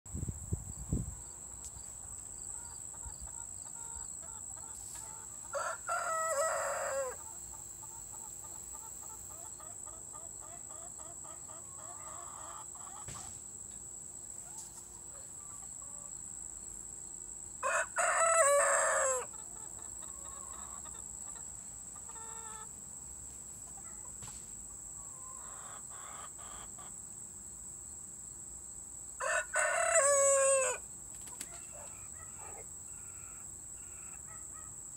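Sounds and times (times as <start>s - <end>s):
young rooster crowing: 5.4s - 7.3s, 17.6s - 19.4s, 29.2s - 30.8s.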